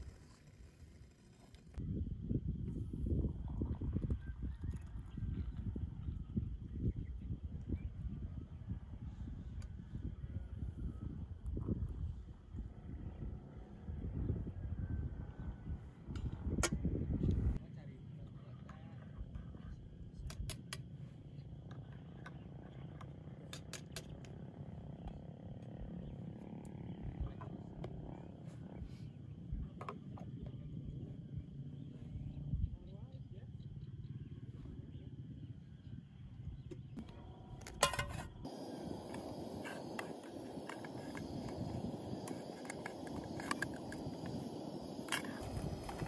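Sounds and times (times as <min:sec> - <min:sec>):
steady low rumble: 0:37.0 - 0:46.0.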